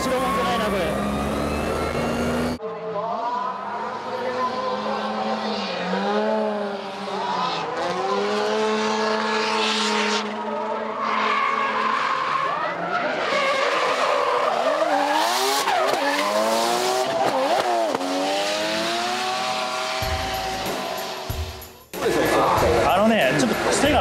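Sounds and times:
rotary engine revving: 0:00.0 - 0:02.6, 0:04.7 - 0:24.0
tyres squealing and skidding: 0:00.0 - 0:02.6, 0:10.6 - 0:21.3.

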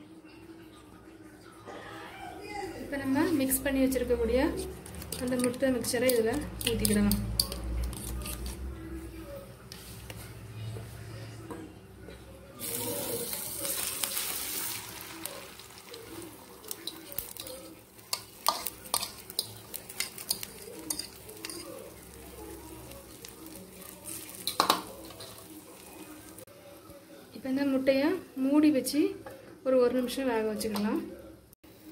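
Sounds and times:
frying sizzle with crackles and pops: 0:02.9 - 0:08.6, 0:12.6 - 0:31.1.

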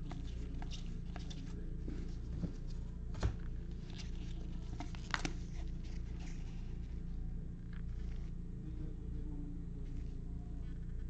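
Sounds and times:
steady low hum: 0:00.0 - 0:11.0
cards clicking and sliding: 0:04.0 - 0:06.4.

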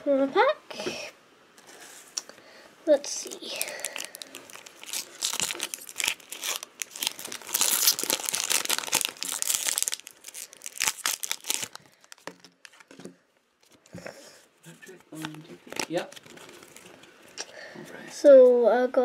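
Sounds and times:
foil wrapper tearing and crinkling: 0:03.2 - 0:12.9, 0:15.2 - 0:17.0.

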